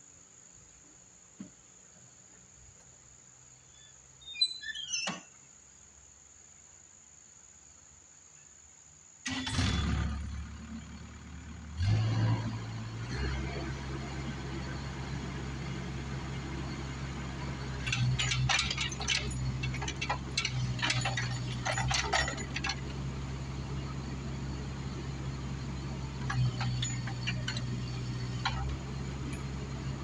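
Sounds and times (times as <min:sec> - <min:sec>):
diesel engine running: 0:09.3 - 0:30.0.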